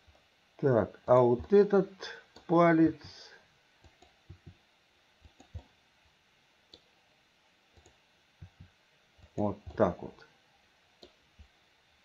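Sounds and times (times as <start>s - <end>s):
computer mouse and keyboard clicks: 3.8s - 4.6s, 5.2s - 5.7s, 7.8s - 9.9s, 11.0s - 11.2s.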